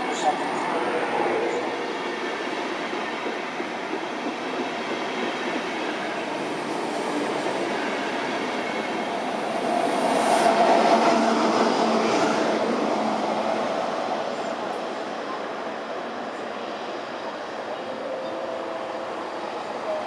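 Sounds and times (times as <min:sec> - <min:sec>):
electric locomotive passing: 0:00.0 - 0:20.0
train wheels on rails: 0:00.0 - 0:20.0.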